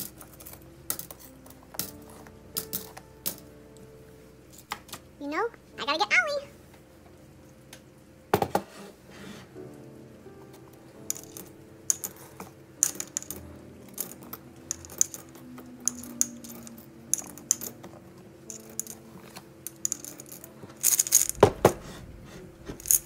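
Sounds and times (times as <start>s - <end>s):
coins clinking into ceramic bank: 0.0s - 3.5s, 11.0s - 21.4s, 22.8s - 23.0s.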